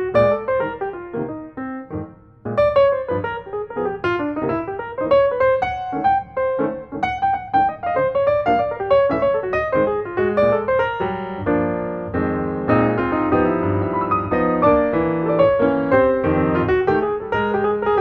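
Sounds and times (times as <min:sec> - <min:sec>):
piano music: 0:00.0 - 0:18.0.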